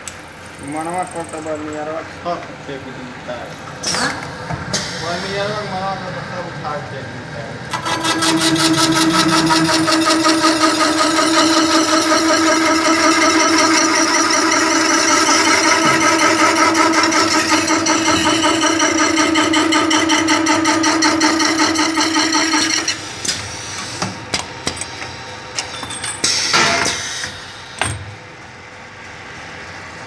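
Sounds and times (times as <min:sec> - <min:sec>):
cutting and drilling machine whine: 0:07.7 - 0:23.0.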